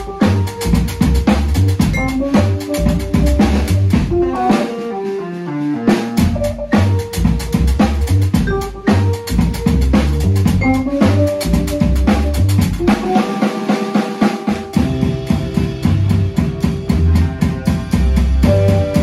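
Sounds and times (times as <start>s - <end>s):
deep bass line: 0.0s - 4.8s, 5.8s - 13.2s, 14.7s - 19.0s
fast drum beat: 0.0s - 19.0s
keyboards: 0.0s - 19.0s
vibraphone: 8.4s - 9.4s.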